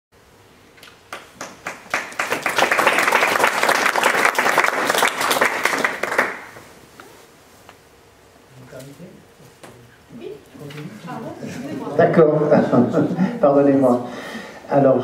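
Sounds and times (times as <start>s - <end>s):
audience applauding: 1.1s - 6.6s.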